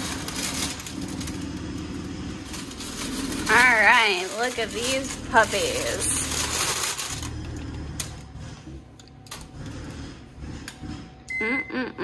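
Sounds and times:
parchment paper rustling: 0.0s - 8.4s.

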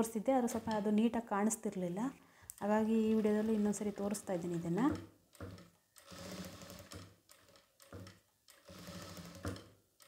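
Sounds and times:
industrial sewing machine stitching: 2.8s - 9.8s.

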